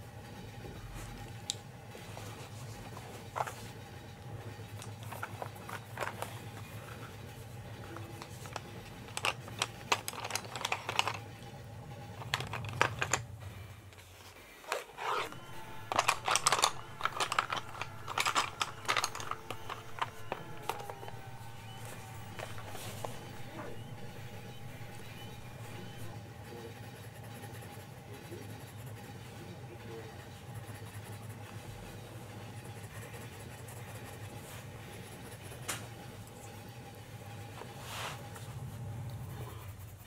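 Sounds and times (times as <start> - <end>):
steady low hum: 0.0 - 40.0
wooden pencils clattering: 4.7 - 7.1, 7.8 - 11.4, 12.1 - 13.3, 14.6 - 26.1.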